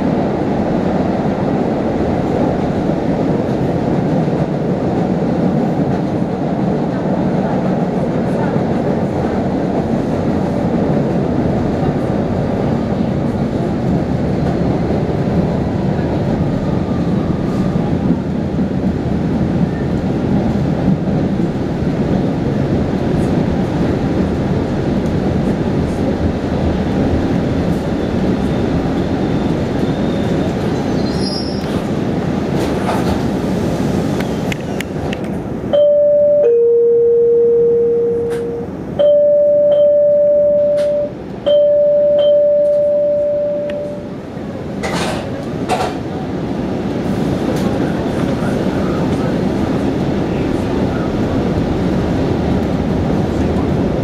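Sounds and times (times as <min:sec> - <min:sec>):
subway car rumbling on rails: 0:00.0 - 0:54.0
two-pitch tones: 0:35.8 - 0:44.0.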